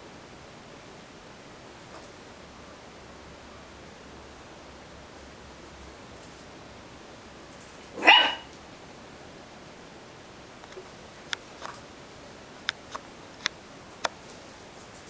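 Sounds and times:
puppy barking: 8.0s - 8.5s.

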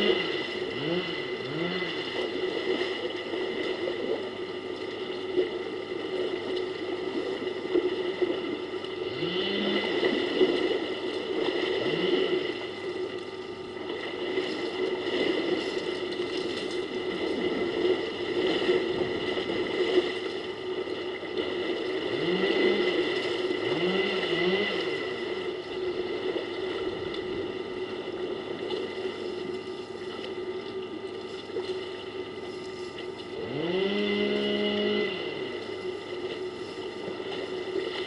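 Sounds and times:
elephants splashing in water: 0.0s - 4.6s, 5.2s - 13.1s, 13.7s - 27.8s
low droning sound: 0.0s - 7.2s, 8.1s - 14.8s, 21.6s - 38.0s.

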